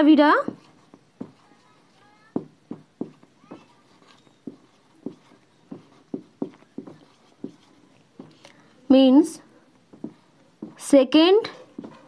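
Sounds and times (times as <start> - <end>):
marker writing on whiteboard: 0.0 - 9.0, 9.9 - 12.0.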